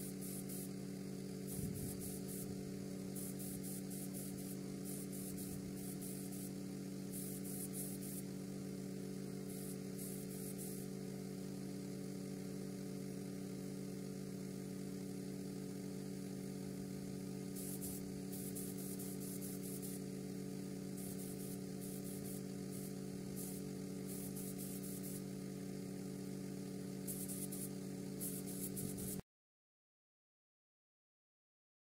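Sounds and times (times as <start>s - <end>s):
spray gun hissing bursts: 0.0s - 8.4s, 9.4s - 11.0s, 17.4s - 25.9s, 27.0s - 29.2s
low machine hum: 0.0s - 29.2s.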